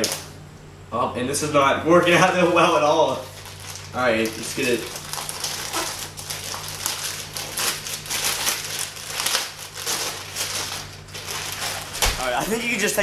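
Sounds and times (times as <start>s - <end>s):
plastic bag crinkling: 2.4s - 13.0s.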